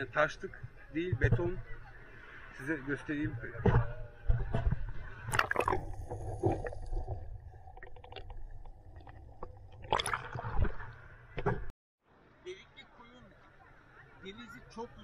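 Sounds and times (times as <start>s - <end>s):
sea water sloshing and splashing: 3.6s - 11.7s.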